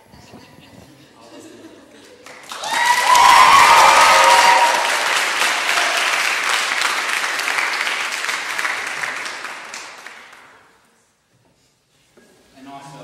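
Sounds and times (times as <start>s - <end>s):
audience applauding: 2.2s - 10.7s
person cheering: 2.5s - 6.0s.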